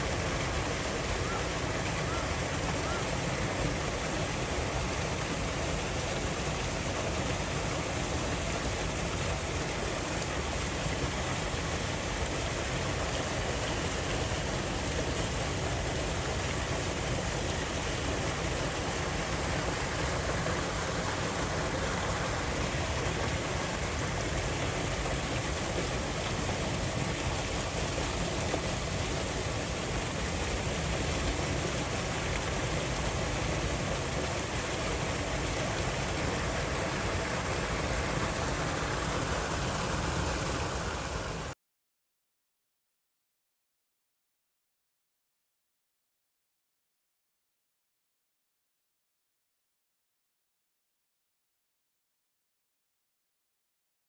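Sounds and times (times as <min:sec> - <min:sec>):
flowing water rushing: 0:00.0 - 0:41.6.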